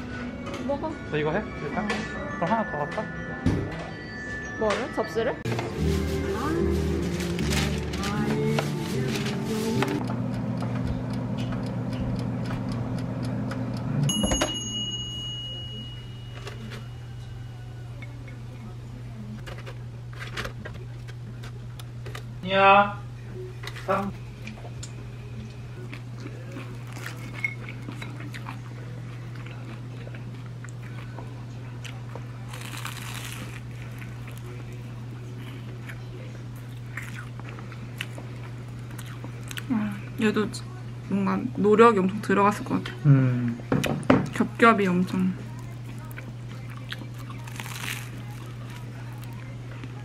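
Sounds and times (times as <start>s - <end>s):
low oven hum: 0.0s - 50.0s
timer clunk: 14.0s - 15.4s
bell ding: 14.1s - 17.0s
pastries crackling on a plate: 32.4s - 36.2s, 45.5s - 50.0s.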